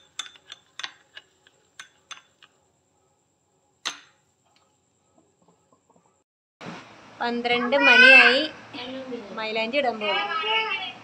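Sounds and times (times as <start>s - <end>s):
spoon clinking on glass bowl: 0.0s - 2.5s, 3.9s - 4.2s
spoon stirring paste: 0.0s - 2.6s.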